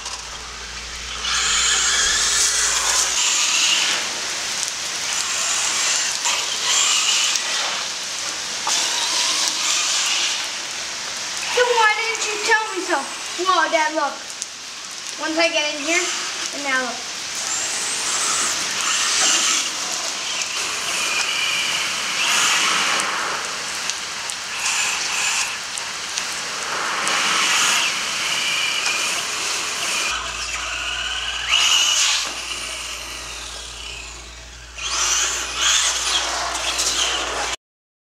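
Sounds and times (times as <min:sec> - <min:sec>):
steady low hum: 0:00.0 - 0:05.8, 0:25.7 - 0:37.6
rain and tyre spray: 0:00.0 - 0:30.2
electric motor whining: 0:00.0 - 0:37.6.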